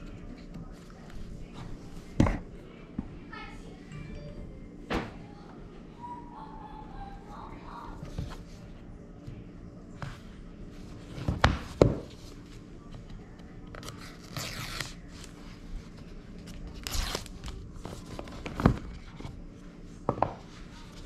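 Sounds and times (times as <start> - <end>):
paper tabs ripping: 16.7 - 17.6.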